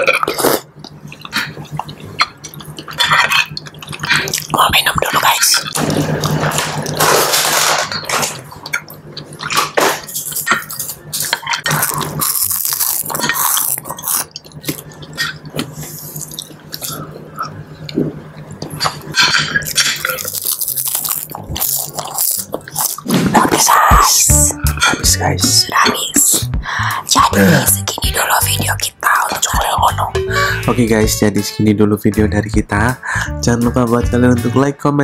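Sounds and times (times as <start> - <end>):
wet chewing: 0.0 - 7.2, 8.5 - 24.0.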